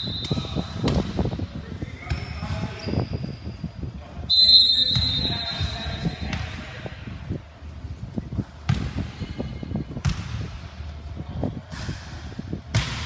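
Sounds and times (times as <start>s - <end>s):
ball bouncing thuds: 8.6s - 9.1s, 9.9s - 10.6s, 11.7s - 13.0s.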